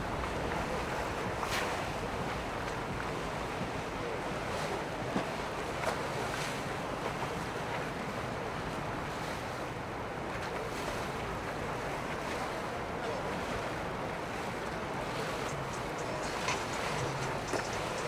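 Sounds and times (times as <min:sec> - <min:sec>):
rushing water: 0:00.0 - 0:18.0.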